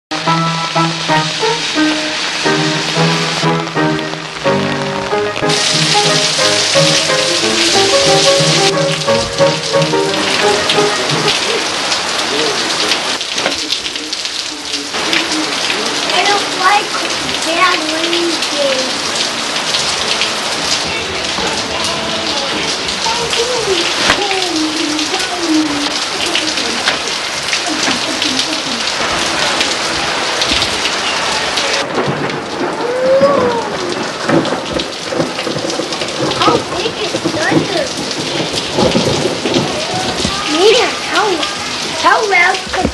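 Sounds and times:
heavy rain on pavement: 0.1s - 42.9s
child calling out: 32.8s - 33.9s.

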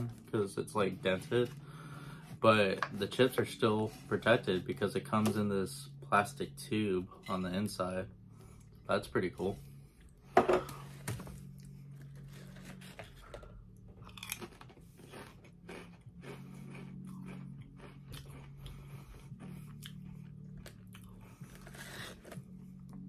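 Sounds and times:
low hum: 0.0s - 23.0s
person crunching potato chips: 11.9s - 22.4s.

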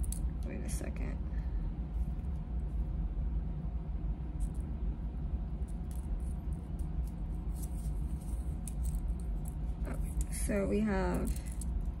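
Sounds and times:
steady low hum: 0.0s - 12.0s
jewelry clicking and clinking: 5.6s - 12.0s.

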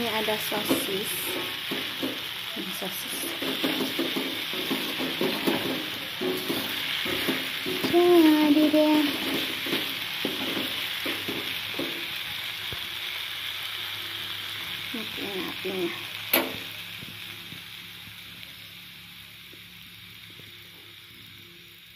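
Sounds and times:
spatula scraping wok: 0.0s - 13.1s
noodles sizzling in a wok: 0.0s - 21.9s.

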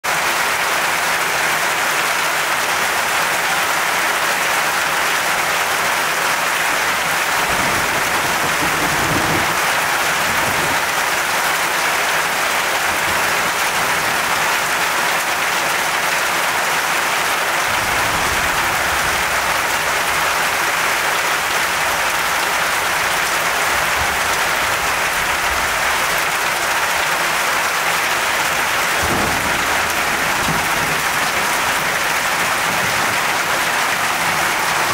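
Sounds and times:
torrential rain hiss: 1.6s - 34.9s
low thunder rumbles: 7.2s - 11.2s, 17.7s - 20.4s, 28.9s - 33.2s.

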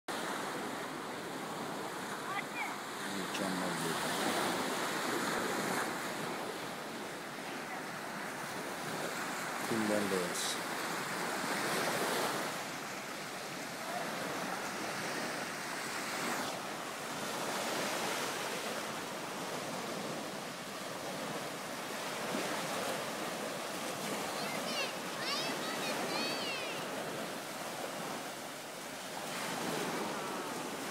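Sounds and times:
waves breaking on sandy beach: 0.1s - 30.9s.

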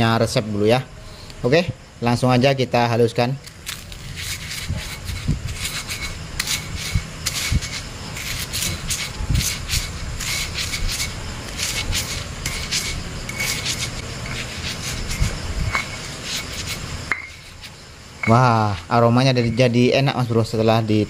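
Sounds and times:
stone pestle grinding in mortar: 4.0s - 19.8s.

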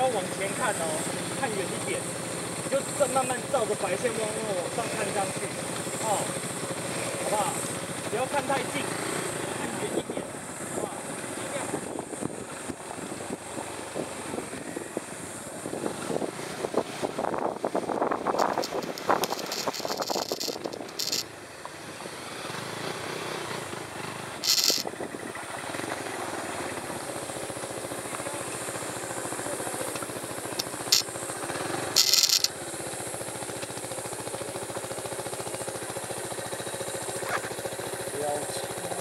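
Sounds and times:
motorcycle engine running: 0.0s - 39.0s
tyres crackling on gravel: 17.0s - 21.7s, 24.4s - 26.0s, 29.9s - 32.6s.

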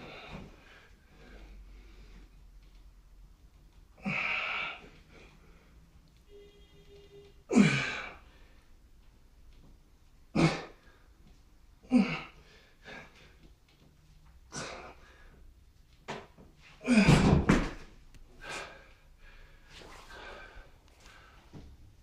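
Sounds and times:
man exhaling and grunting: 4.0s - 5.0s, 7.5s - 8.2s, 10.3s - 11.0s, 11.8s - 13.2s, 14.5s - 15.1s, 16.8s - 17.5s
heavy thud of feet: 16.9s - 17.9s.

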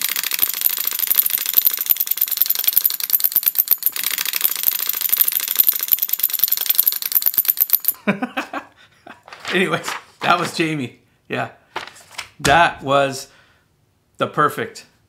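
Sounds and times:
mechanical clatter: 0.0s - 8.0s.

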